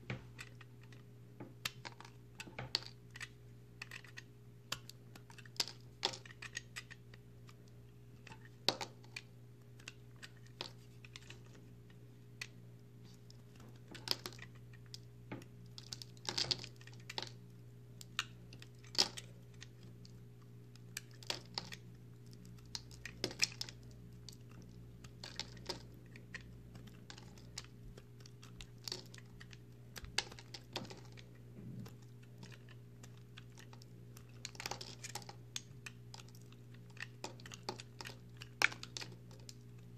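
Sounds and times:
low steady hum: 0:00.0 - 0:39.9.

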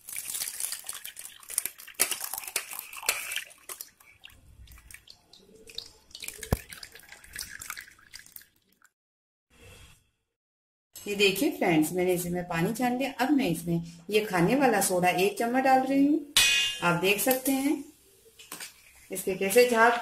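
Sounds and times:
liquid pouring through strainer: 0:00.0 - 0:08.9.

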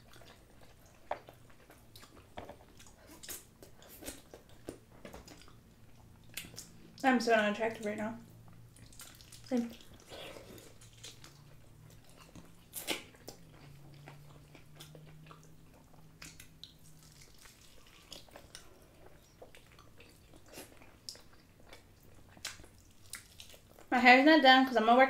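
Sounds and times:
wet mouth sounds: 0:08.7 - 0:23.8
crunching fried chicken: 0:08.7 - 0:23.9.

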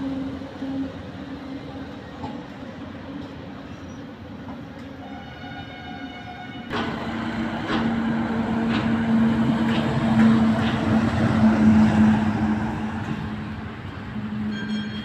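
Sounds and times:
truck engine drone: 0:06.7 - 0:14.5.

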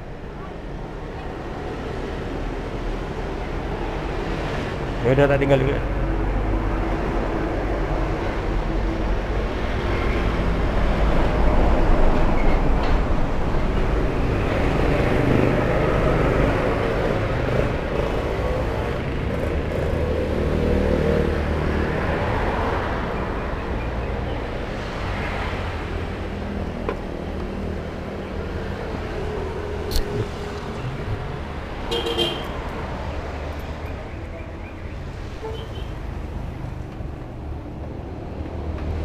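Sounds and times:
passing traffic noise: 0:00.0 - 0:39.0
heavy truck rumble: 0:26.7 - 0:33.7.

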